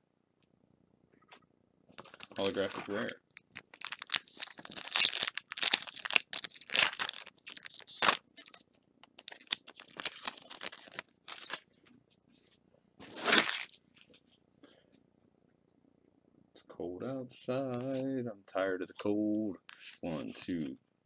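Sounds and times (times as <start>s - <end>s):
foil wrapper tearing and crinkling: 2.0s - 11.6s, 13.0s - 13.8s.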